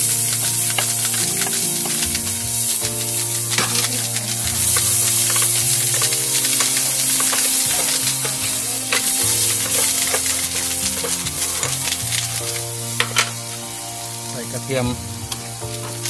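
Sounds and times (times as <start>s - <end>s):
spatula scraping a pan: 0.0s - 13.5s
spices sizzling in a pan: 0.0s - 16.0s.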